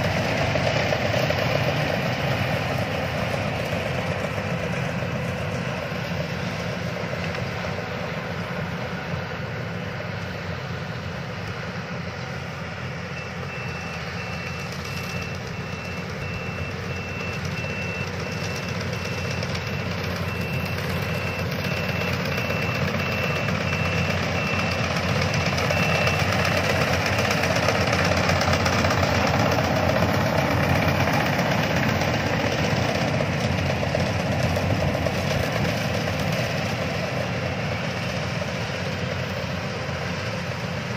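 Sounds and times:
combine harvester running: 0.0s - 40.9s
faint high beep: 12.0s - 40.3s.

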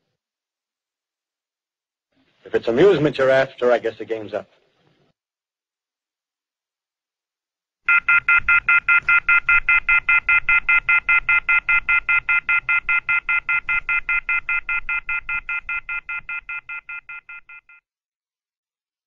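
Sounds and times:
telephone off-hook warning tone: 7.9s - 17.8s.

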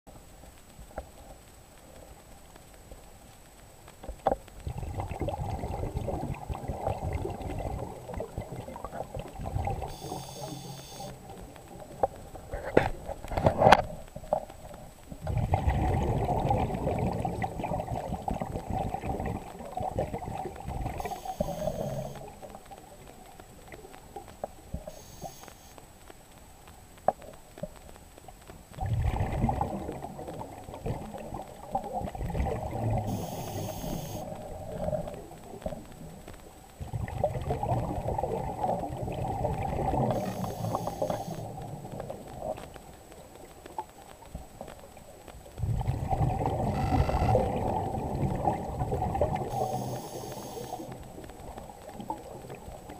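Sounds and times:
bubbles gurgling underwater: 4.6s - 10.2s, 14.5s - 23.0s, 28.8s - 33.1s, 36.8s - 42.8s, 45.0s - 52.9s
regulator hissing: 21.0s - 22.2s, 33.2s - 34.2s, 40.2s - 41.4s, 49.5s - 50.9s.

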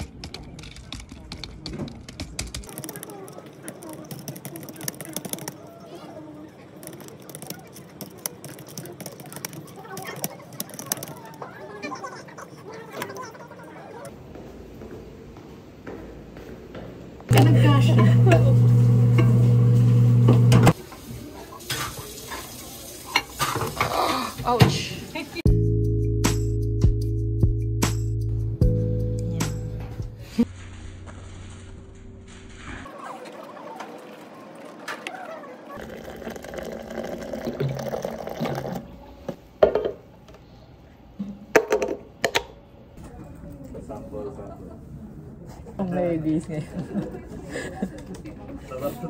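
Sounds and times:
microwave oven humming: 17.3s - 20.7s
hot water pouring into mug: 35.8s - 38.9s.

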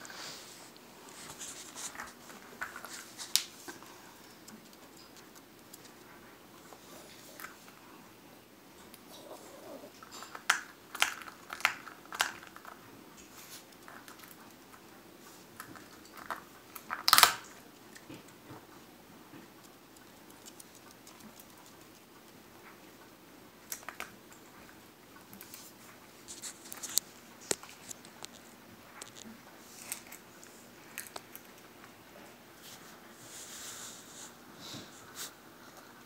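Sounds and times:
dog crunching nut shell: 9.9s - 12.8s, 15.6s - 18.3s.

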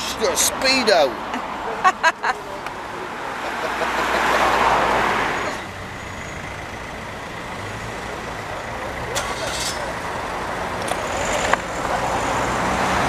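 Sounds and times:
low hum of road traffic: 0.0s - 13.0s
vehicle passing close by: 2.4s - 5.7s, 7.4s - 13.0s.

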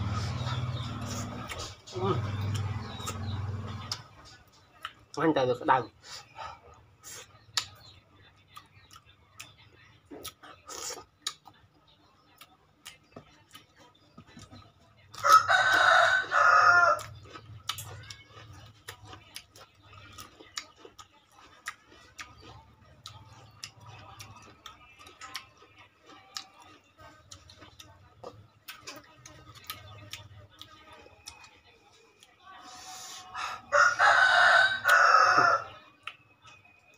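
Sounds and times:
rooster crowing: 15.2s - 17.1s, 33.4s - 35.8s.

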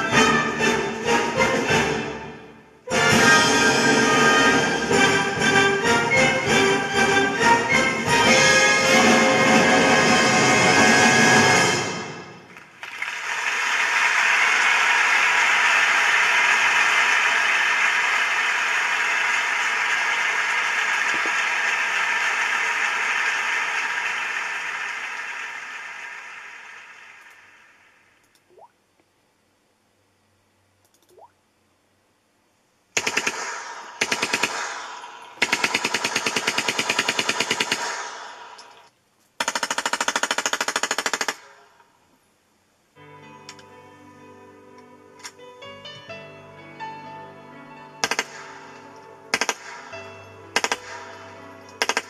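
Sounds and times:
static hiss: 8.4s - 31.0s
machine-gun fire bursts: 32.9s - 38.6s, 39.4s - 41.6s, 48.0s - 48.6s, 49.3s - 49.9s, 50.6s - 51.2s, 51.8s - 52.0s.

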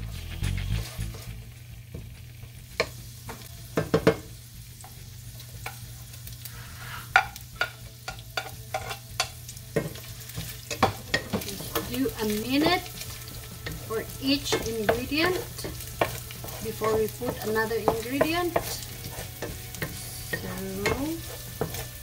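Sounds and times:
meat sizzling in a skillet: 0.0s - 22.0s
wooden spatula scraping a pan: 6.4s - 7.7s, 9.8s - 22.0s
utensils clicking against pan: 7.1s - 22.0s
steady low hum: 11.4s - 22.0s.

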